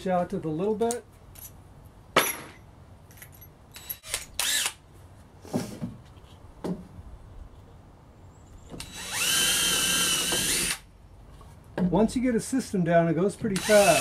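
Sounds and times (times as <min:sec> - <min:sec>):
drill motor whine: 0:08.8 - 0:10.8, 0:13.6 - 0:14.0.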